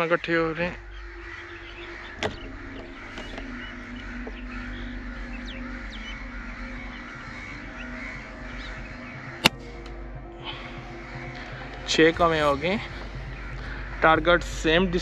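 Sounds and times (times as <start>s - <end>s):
flock of crows cawing: 0.0s - 15.0s.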